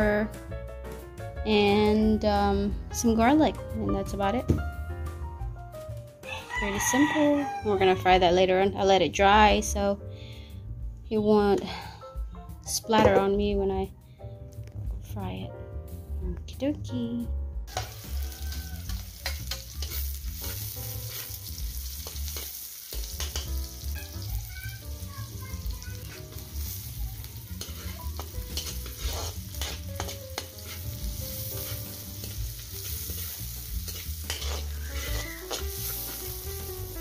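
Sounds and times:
metal spatula scraping wok: 0:17.7 - 0:24.4, 0:25.3 - 0:37.0
onions sizzling in oil: 0:17.7 - 0:37.0.

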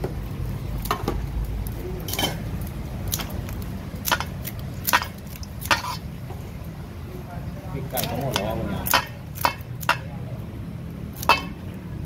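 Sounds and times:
steady low rumble: 0:00.0 - 0:12.0
dishes clinking: 0:02.0 - 0:02.5, 0:11.2 - 0:11.6.

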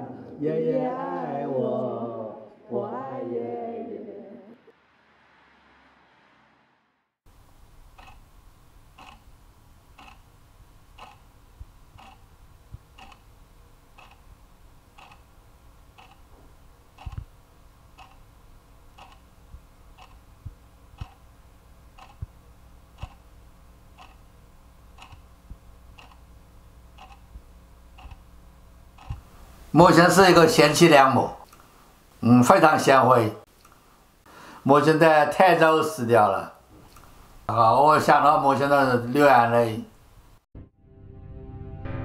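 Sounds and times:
clock ticking: 0:07.8 - 0:29.3.

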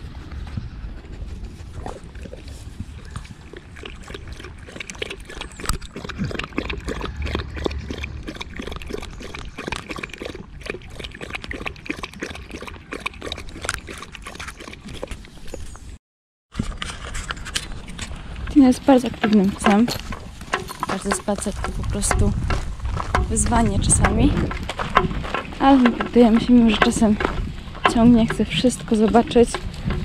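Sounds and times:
dog lapping water: 0:01.8 - 0:15.6.

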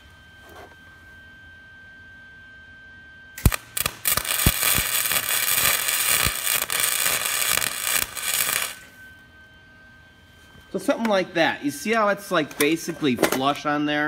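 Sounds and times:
welder arc crackling: 0:03.4 - 0:09.0.

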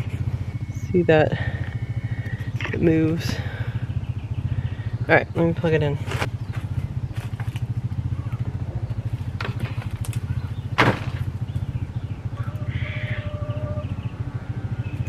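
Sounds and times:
fan humming: 0:00.0 - 0:15.0.

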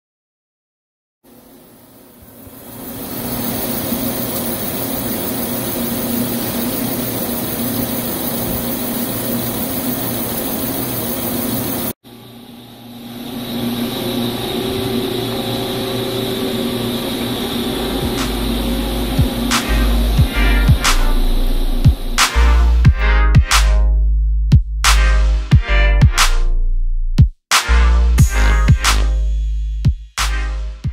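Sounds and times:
milling machine cutting drone: 0:01.3 - 0:23.3.

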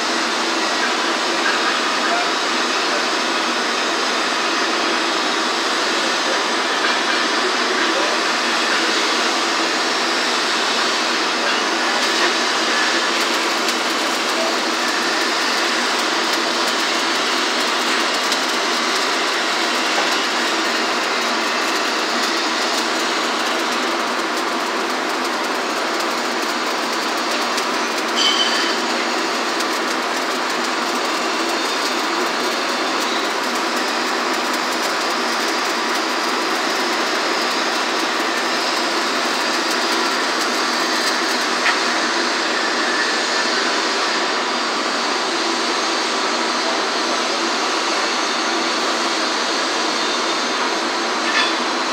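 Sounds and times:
welding arc crackling: 0:04.4 - 0:44.3.

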